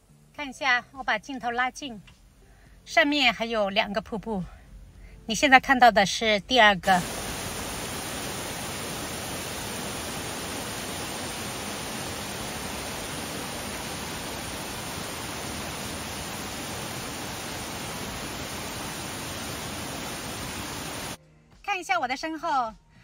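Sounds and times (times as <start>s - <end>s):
waterfall roaring: 7.0s - 21.2s.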